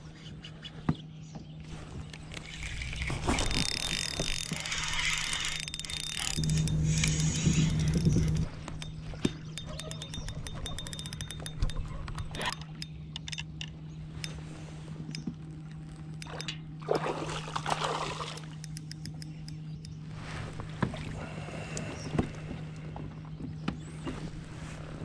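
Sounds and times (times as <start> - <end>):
steady low hum: 0.0 - 25.0
fishing reel clicking: 2.2 - 13.7, 18.4 - 20.0
water splashing: 16.3 - 18.6.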